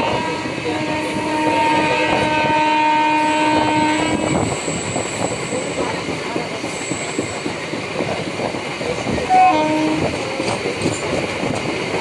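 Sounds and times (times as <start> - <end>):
train horn: 0.0 - 4.5, 9.3 - 10.2
train wheels clattering on rails: 0.0 - 12.0.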